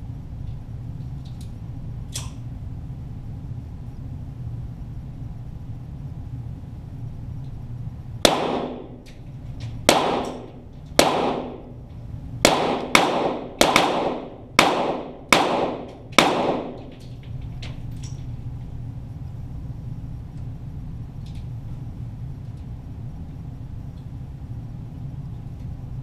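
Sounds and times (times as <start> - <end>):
pistol shots with echo: 8.2 - 9.0, 9.9 - 11.8, 12.4 - 17.0.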